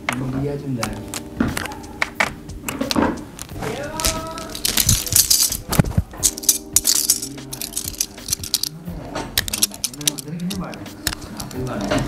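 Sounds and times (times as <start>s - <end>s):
metal parts jangling and clinking: 4.0s - 11.9s.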